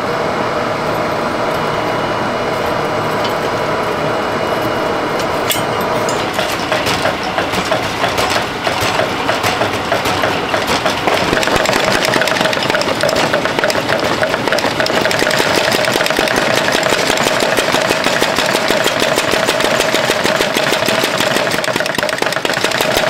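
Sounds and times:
forge air blower rushing: 0.0s - 23.0s
rapid pulsing: 6.3s - 23.0s.

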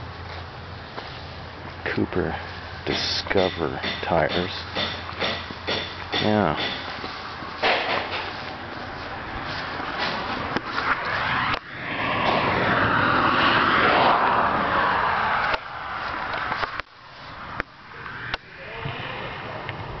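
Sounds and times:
vehicle passing: 7.1s - 20.0s.

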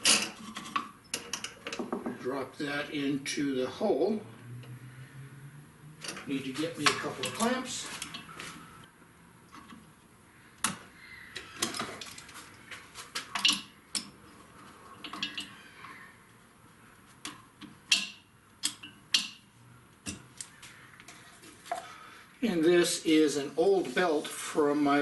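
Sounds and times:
metal clamps clanking and clicking: 0.0s - 1.9s, 6.0s - 8.3s, 13.3s - 14.1s, 15.0s - 15.6s, 17.9s - 19.4s.

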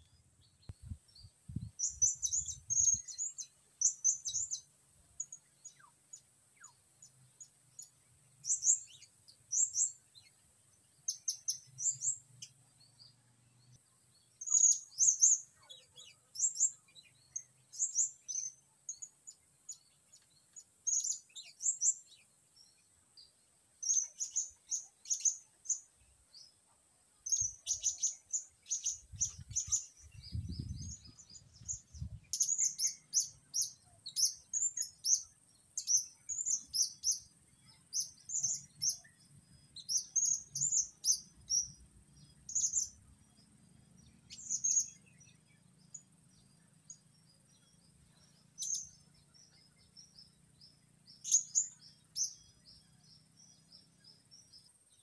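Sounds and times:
insect drone: 16.1s - 20.2s, 27.2s - 55.0s.

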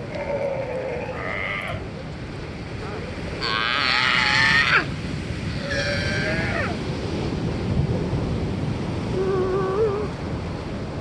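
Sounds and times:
sea lions barking: 0.0s - 2.0s, 3.4s - 6.8s
ocean surf: 0.0s - 11.0s.

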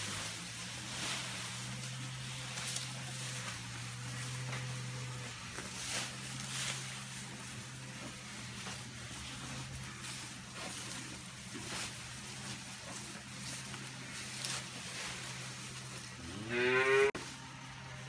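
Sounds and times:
steady low hum: 0.0s - 16.5s
cows crunching grass: 0.0s - 18.0s.

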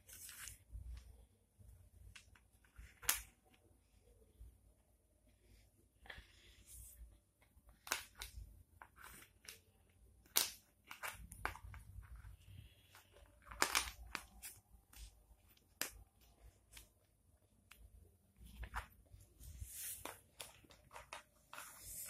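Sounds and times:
wooden puzzle pieces knocking: 13.4s - 15.1s.

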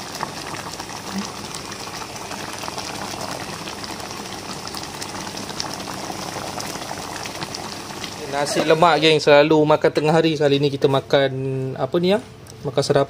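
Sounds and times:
sauce bubbling in a pan: 0.0s - 9.2s.

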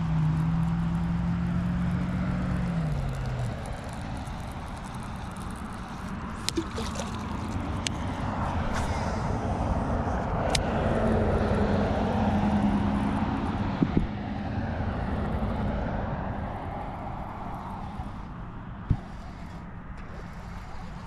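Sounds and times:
distant engine passing by: 0.0s - 21.0s
small clicks from handling gear: 2.8s - 8.9s, 10.5s - 10.7s.

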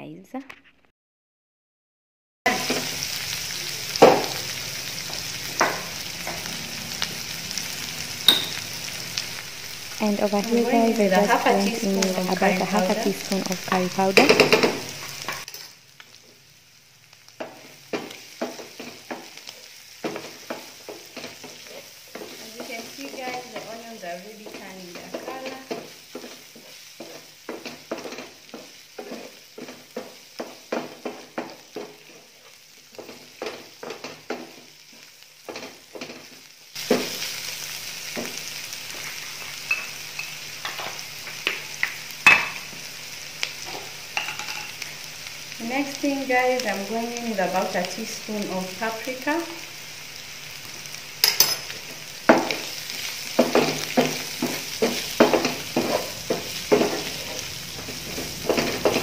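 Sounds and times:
meat sizzling in a frying pan: 2.5s - 59.0s
wooden spatula scraping a pan: 17.4s - 37.4s, 51.7s - 59.0s.

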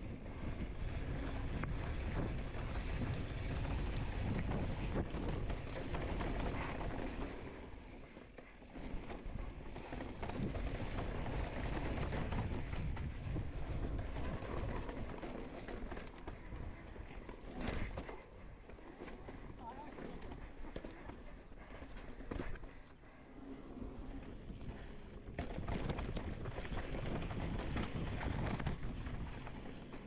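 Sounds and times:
bike knocking and rattling: 0.3s - 22.8s, 24.3s - 30.0s
wind on microphone: 9.2s - 15.0s.

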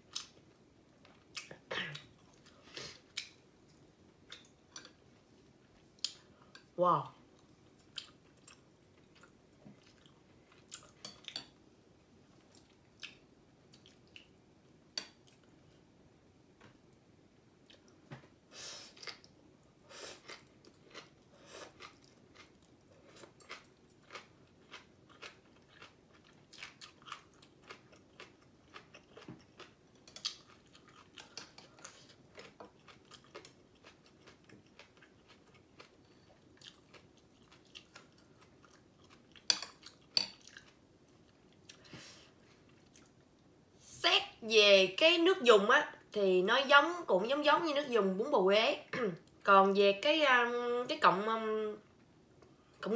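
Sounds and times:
chewing and slurping noodles: 20.2s - 40.8s.

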